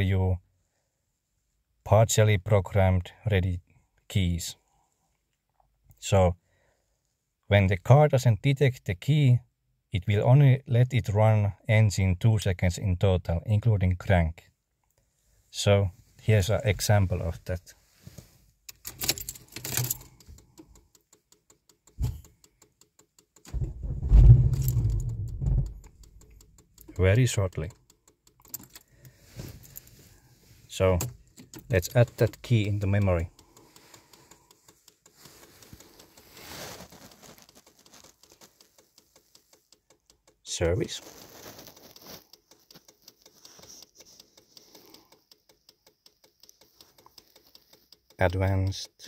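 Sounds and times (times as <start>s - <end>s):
car engine cranking: 18.7s - 40.5s
fast light ticks: 20.0s - 23.6s, 24.6s - 28.8s, 31.0s - 36.3s, 37.6s - 40.5s, 42.2s - 49.0s
brief rustle: 23.5s - 26.2s, 35.1s - 39.6s, 40.8s - 45.1s.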